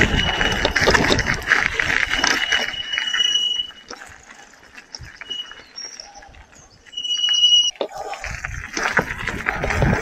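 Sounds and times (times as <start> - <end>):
wind and tyre noise: 0.0 - 10.0.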